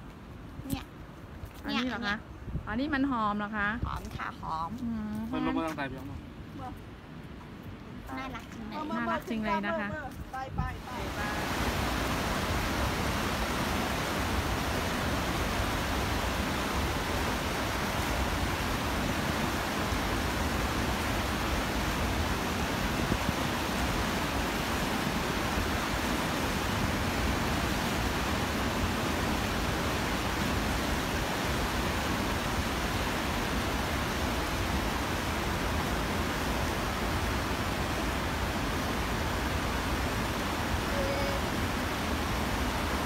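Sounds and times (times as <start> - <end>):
waterfall rushing: 10.7 - 43.0.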